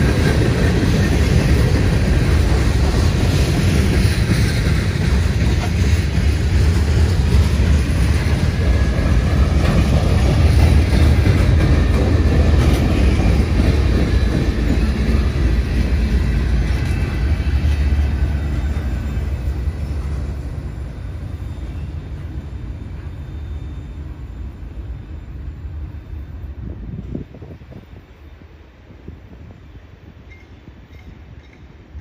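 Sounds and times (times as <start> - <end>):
freight train rumbling on rails: 0.0 - 32.0.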